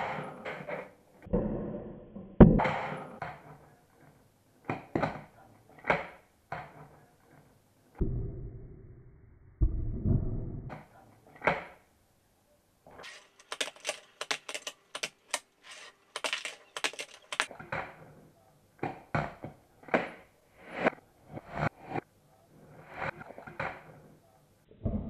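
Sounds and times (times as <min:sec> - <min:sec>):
wheels rolling on wooden tabletop: 0:13.0 - 0:17.5
sharp wooden clacks: 0:13.0 - 0:17.6.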